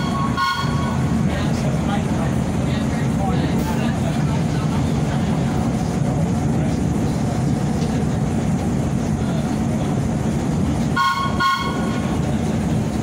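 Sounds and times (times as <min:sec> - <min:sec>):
train horn blasts: 0:00.0 - 0:01.1, 0:11.0 - 0:12.1
subway train rumbling: 0:00.0 - 0:13.0.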